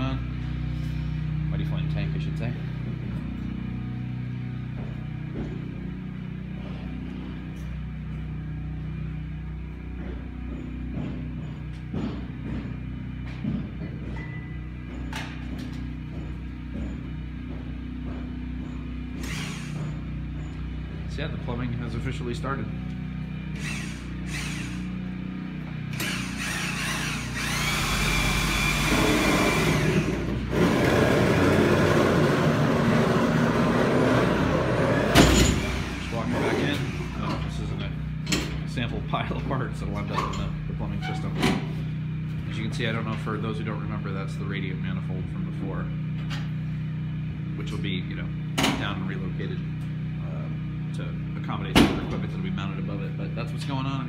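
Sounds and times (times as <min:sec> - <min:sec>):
machinery running: 0:00.0 - 0:40.0
gas heaters rumbling: 0:00.0 - 0:54.0
motor whine: 0:16.1 - 0:20.7, 0:22.8 - 0:37.7.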